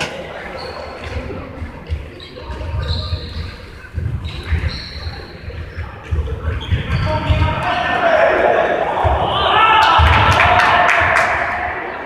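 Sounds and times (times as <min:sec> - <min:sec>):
shoe squeaks: 0:00.4 - 0:07.9.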